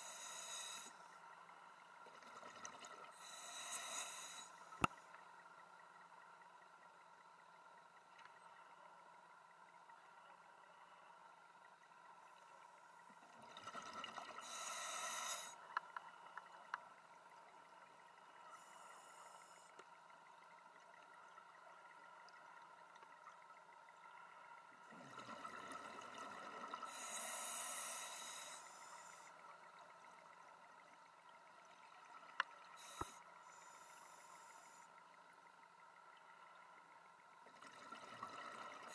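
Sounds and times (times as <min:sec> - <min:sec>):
regulator inhalation hiss: 0:00.0 - 0:01.1, 0:03.2 - 0:04.8, 0:14.4 - 0:15.6, 0:26.9 - 0:29.3, 0:32.8 - 0:34.8.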